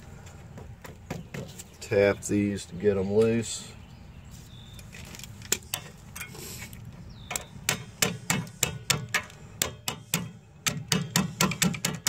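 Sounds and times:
metal tapping on brake pads: 0:07.2 - 0:12.0.

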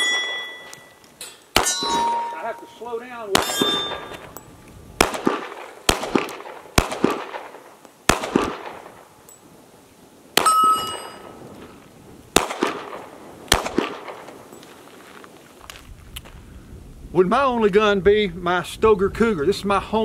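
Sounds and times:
bullet clanging on steel target: 0:00.0 - 0:04.5, 0:10.4 - 0:11.4
pistol shots: 0:01.5 - 0:02.5, 0:03.3 - 0:04.4, 0:05.0 - 0:09.1, 0:10.4 - 0:11.3, 0:12.3 - 0:14.4.

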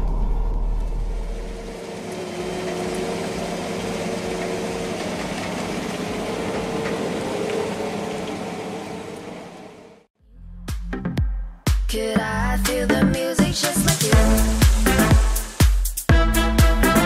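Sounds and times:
combine harvester drone: 0:00.0 - 0:10.1.

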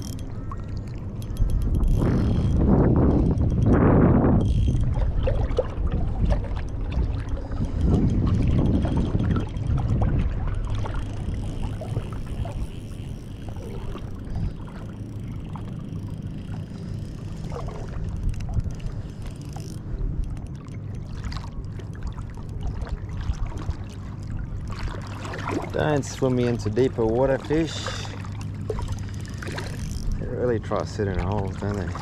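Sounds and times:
wind on microphone: 0:00.0 - 0:20.4
steady low hum: 0:00.0 - 0:32.0
water lapping and splashing: 0:00.0 - 0:32.0.

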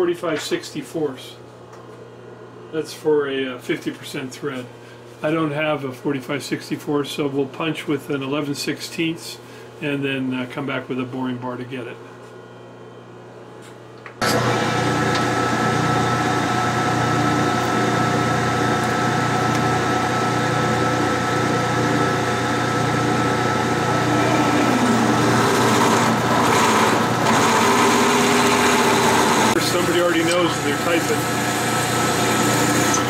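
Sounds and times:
metal lathe running: 0:14.2 - 0:33.0.

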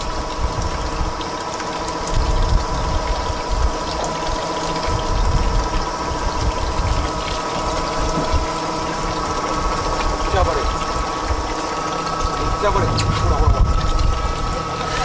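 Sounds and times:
boat engine running: 0:00.0 - 0:15.0
water washing around hull: 0:00.0 - 0:15.0.

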